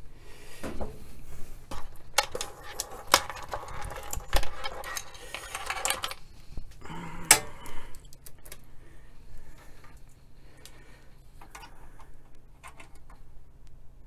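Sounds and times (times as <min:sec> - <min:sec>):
metal connectors clinking: 0:01.7 - 0:08.7.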